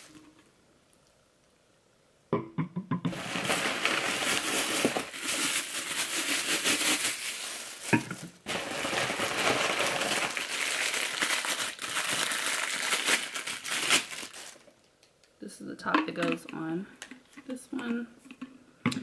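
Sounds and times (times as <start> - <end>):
plastic packaging crinkling: 3.1 - 15.1.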